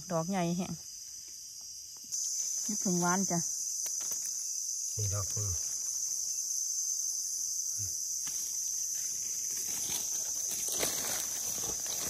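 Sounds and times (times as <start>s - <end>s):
forest insects droning: 0.0s - 12.0s
dry leaves crunching underfoot: 8.3s - 12.0s.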